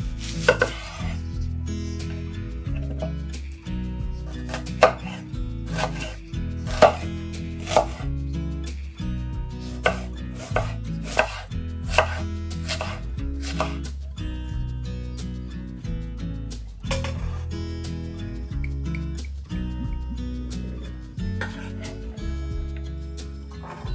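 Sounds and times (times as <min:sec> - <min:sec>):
soft background music: 0:00.0 - 0:23.9
knife chopping food: 0:00.2 - 0:01.0, 0:04.5 - 0:08.0, 0:09.8 - 0:13.8.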